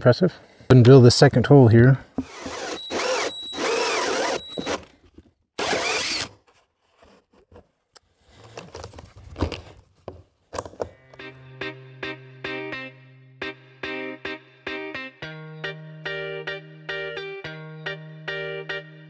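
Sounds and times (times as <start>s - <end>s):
drill hole saw cutting plastic: 2.2s - 5.0s, 5.6s - 6.5s
handling and rubbing sounds: 6.4s - 11.0s.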